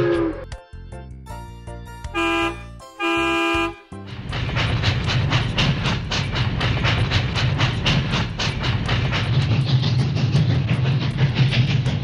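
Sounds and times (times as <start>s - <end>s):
rhythmic train chugging: 2.1s - 12.0s
cartoon train toots: 2.2s - 3.9s.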